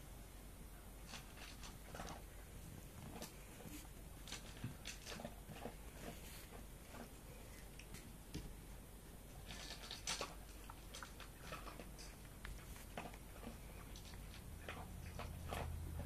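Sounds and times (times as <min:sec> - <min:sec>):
puppies scratching and rustling: 0:01.0 - 0:08.6, 0:09.3 - 0:16.0.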